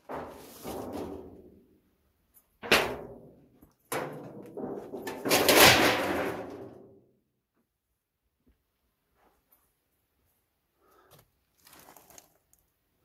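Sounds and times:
loud knocks with clattering rattle: 2.6s - 6.9s.

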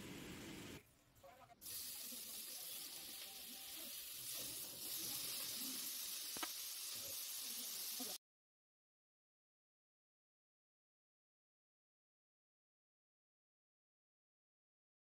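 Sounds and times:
bacon sizzling in frying pan: 1.6s - 8.2s.

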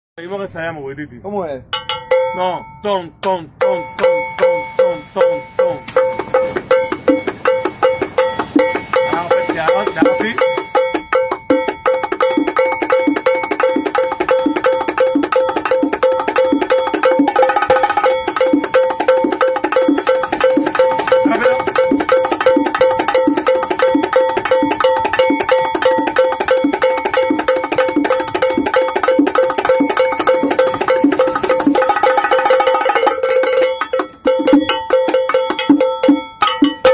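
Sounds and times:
bongo drums played by hand: 1.7s - 2.4s, 3.6s - 36.9s.

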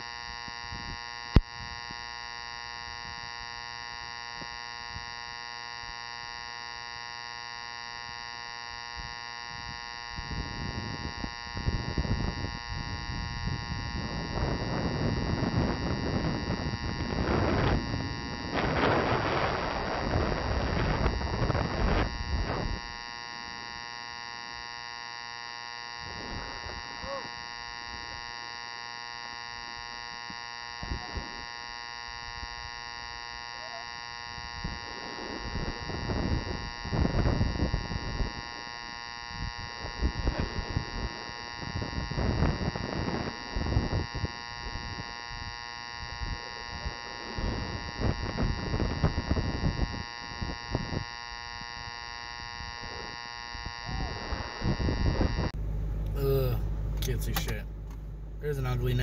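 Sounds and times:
steady electrical hum: 0.0s - 59.0s
wind on microphone: 0.6s - 2.0s, 9.0s - 23.0s, 26.0s - 27.2s, 34.3s - 56.1s.

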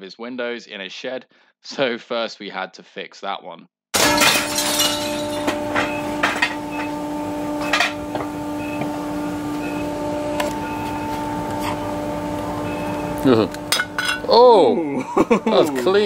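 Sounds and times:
router running with hum: 5.7s - 13.8s.

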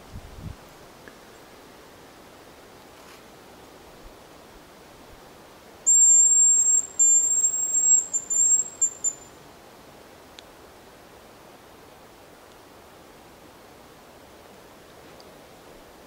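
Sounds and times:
high thin decoy whistle: 5.9s - 9.3s.

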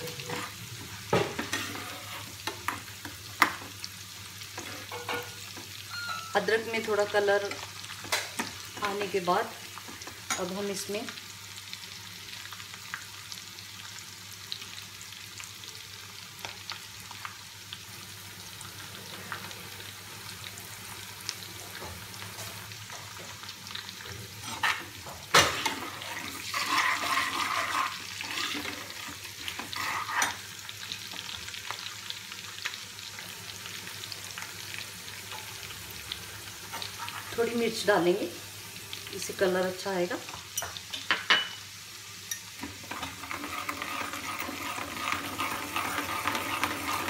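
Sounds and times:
stirring in a pan: 0.0s - 3.8s, 4.4s - 10.5s, 21.8s - 31.9s, 36.6s - 37.8s, 42.3s - 47.0s
food sizzling in ghee: 0.0s - 47.0s.

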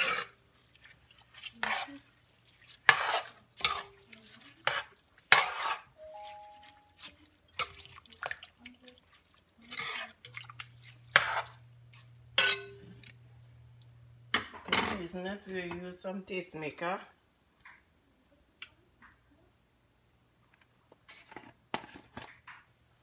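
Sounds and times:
metal spoon scraping a pot: 0.0s - 8.4s, 9.5s - 13.2s
wet sloshing in a pot: 0.0s - 14.1s.

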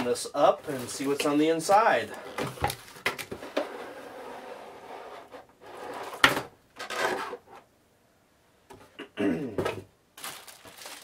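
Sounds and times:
packaging rustle: 0.6s - 1.5s, 10.2s - 11.0s.

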